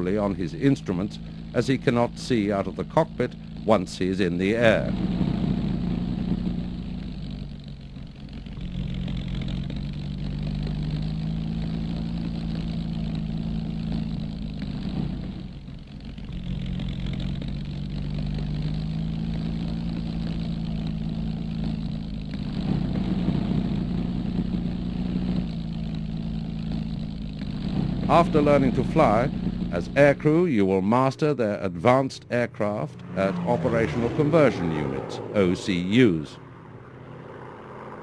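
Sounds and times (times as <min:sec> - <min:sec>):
propeller aircraft engine drone: 0:00.0 - 0:38.0.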